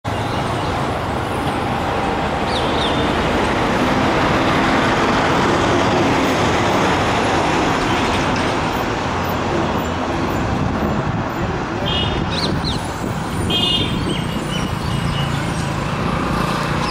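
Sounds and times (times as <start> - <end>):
road traffic noise: 0.0 - 16.9.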